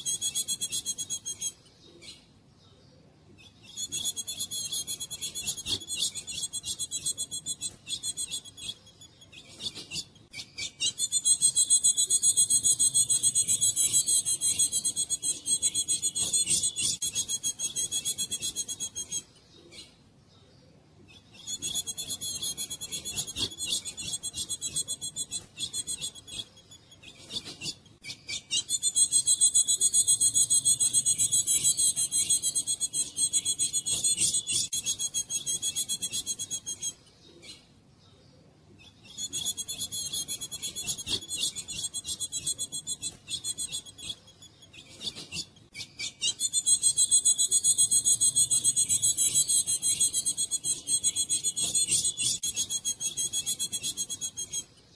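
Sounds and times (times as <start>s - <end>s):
bird raspy chatter: 39.1s - 54.6s.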